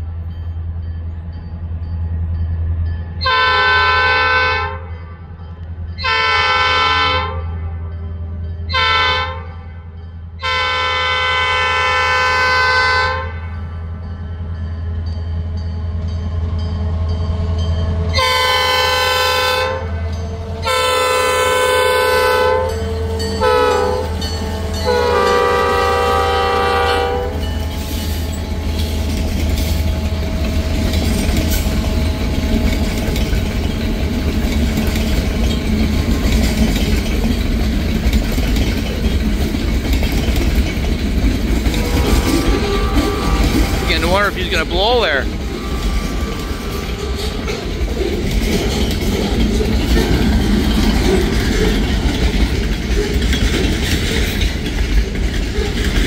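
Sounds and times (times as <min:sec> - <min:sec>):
locomotive horn blasts: 0:03.2 - 0:05.0, 0:06.0 - 0:07.9, 0:08.7 - 0:13.6, 0:18.1 - 0:27.5, 0:41.7 - 0:47.2
freight cars rumbling past: 0:13.6 - 0:56.0.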